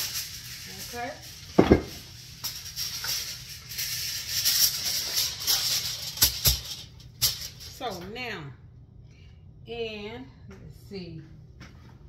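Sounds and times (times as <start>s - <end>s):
aluminium foil crinkling: 0.0s - 7.9s.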